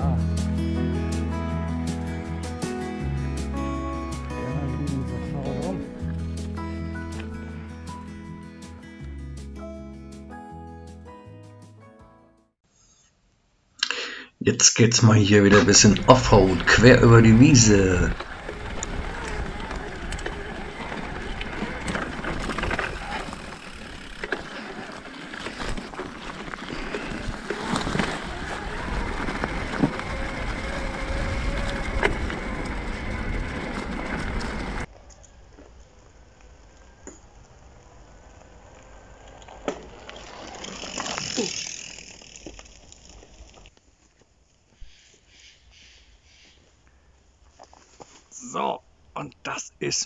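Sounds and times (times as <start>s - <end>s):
bike tyres rolling off-road: 15.3s - 45.2s
rustling: 15.8s - 48.4s.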